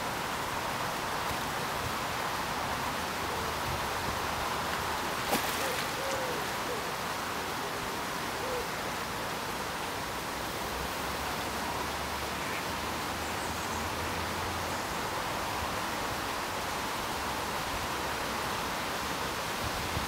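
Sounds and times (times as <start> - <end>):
steady outdoor hiss: 0.0 - 20.0
faint bird calls: 5.4 - 9.1.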